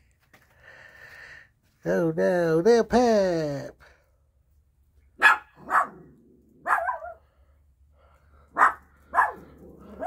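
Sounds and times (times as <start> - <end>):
dog barking: 5.2 - 7.2, 8.5 - 10.0.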